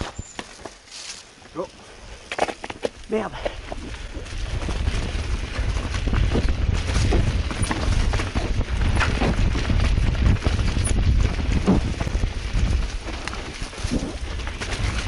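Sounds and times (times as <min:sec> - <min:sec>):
wind rumble on microphone: 0:03.4 - 0:15.0
bike frame and chain clacking: 0:03.9 - 0:15.0.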